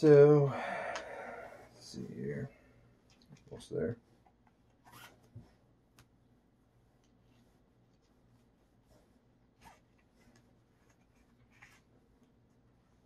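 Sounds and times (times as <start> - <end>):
low steady hum: 0.0 - 13.0
paracord rustling: 6.9 - 13.0
soft scratches: 7.0 - 13.0.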